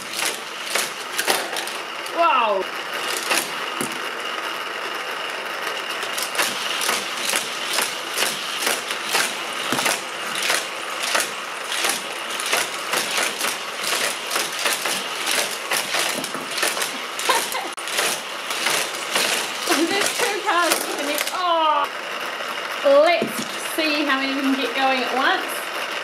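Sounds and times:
toy cars clacking on track: 0.0 - 2.3, 3.0 - 4.5, 5.6 - 21.9
motorized rollers whirring: 0.0 - 26.0.

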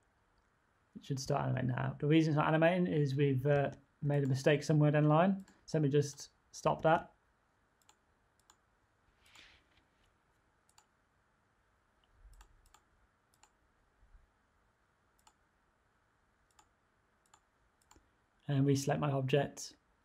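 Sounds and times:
computer mouse clicks: 7.8 - 8.6, 10.7 - 10.9, 12.3 - 13.6, 15.2 - 15.4, 16.5 - 18.1.

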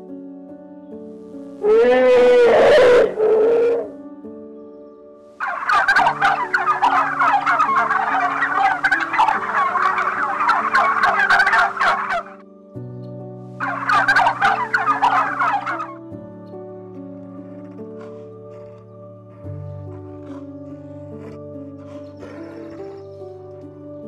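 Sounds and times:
soft background music: 0.0 - 24.0
turkey gobbling: 5.4 - 12.4, 13.6 - 16.0.

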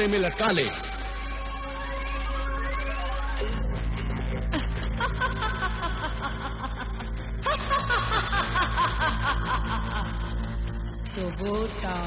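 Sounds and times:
low music drone: 0.0 - 12.0.

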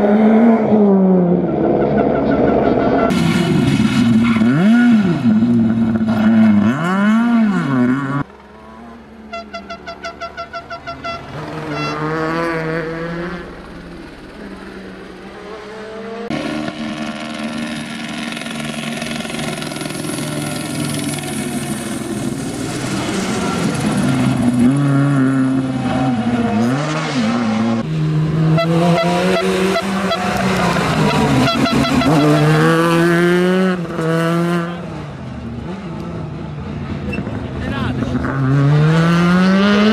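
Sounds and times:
rally car engine revving hard: 22.6 - 34.9, 37.2 - 39.9.

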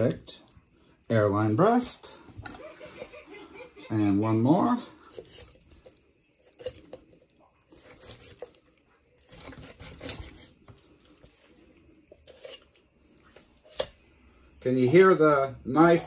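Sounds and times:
knife scraping chicken bones: 5.0 - 12.8, 13.6 - 14.0
wet tearing of skin and meat: 5.0 - 14.0.

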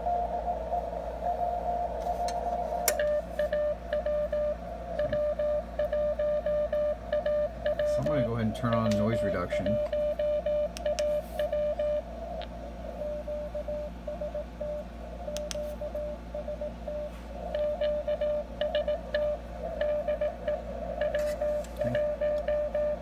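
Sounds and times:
receiver hiss: 0.0 - 23.0
morse code tone: 1.2 - 12.1, 12.9 - 23.0
sharp clicks: 15.3 - 15.6.

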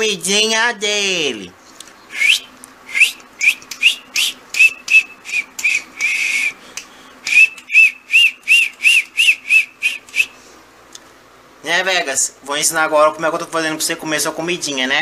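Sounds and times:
person whistling squeaks: 2.1 - 6.6, 7.3 - 10.4.

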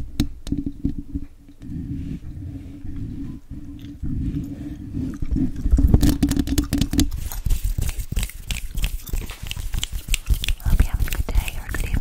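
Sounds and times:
nails scratching on microphone: 1.6 - 12.0
gum chewing mouth sounds: 7.6 - 12.0.

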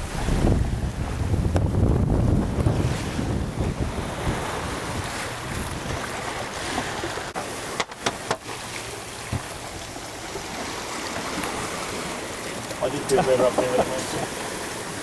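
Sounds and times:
wind buffeting microphone: 0.0 - 7.4
water rushing and splashing: 0.0 - 15.0.

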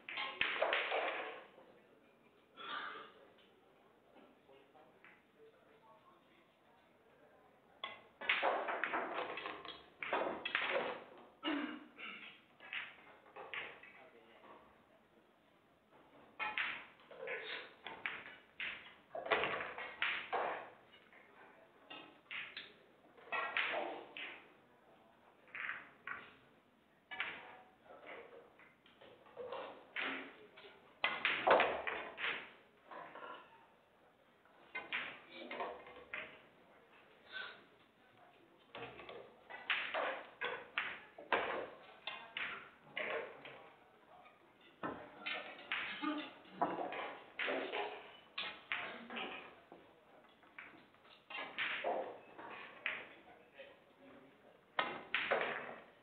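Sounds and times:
pool balls clicking: 0.0 - 1.6, 7.8 - 11.2, 12.2 - 14.0, 15.9 - 24.6, 25.3 - 26.5, 27.1 - 33.5, 34.4 - 37.9, 38.6 - 43.7, 44.6 - 53.3, 54.7 - 56.0.

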